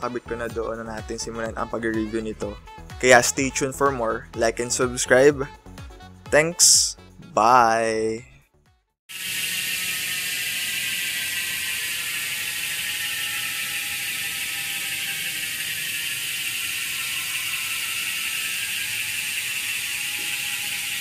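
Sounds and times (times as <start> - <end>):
bike freehub ticking: 9.1 - 21.0.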